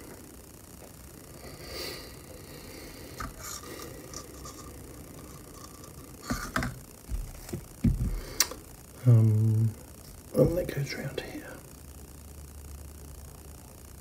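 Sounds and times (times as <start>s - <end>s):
taps and knocks on workbench: 6.3s - 8.2s.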